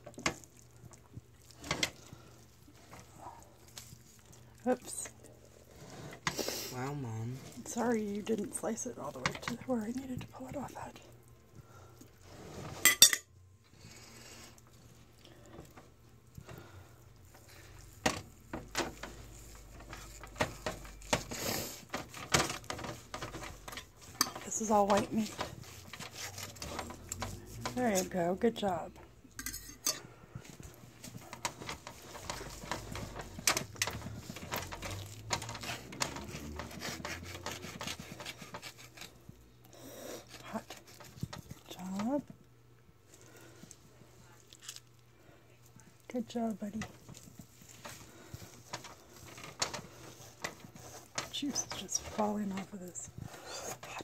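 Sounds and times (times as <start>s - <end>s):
knife slicing meat: 25.4s - 27.7s, 35.0s - 39.2s
knife and fork scraping metal rack: 32.2s - 39.0s.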